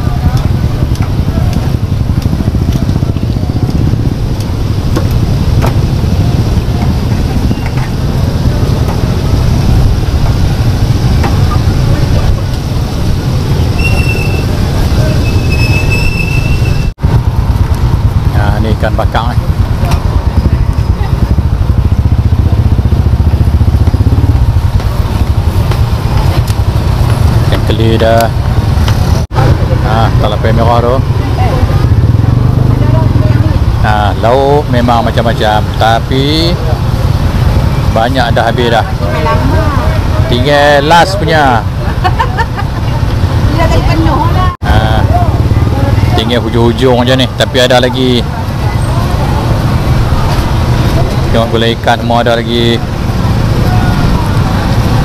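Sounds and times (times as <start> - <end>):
loud low rumble: 16.4 - 40.4.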